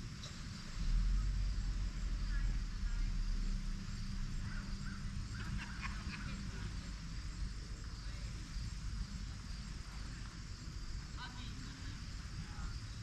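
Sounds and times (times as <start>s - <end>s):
steady low rumble: 0.0s - 13.0s.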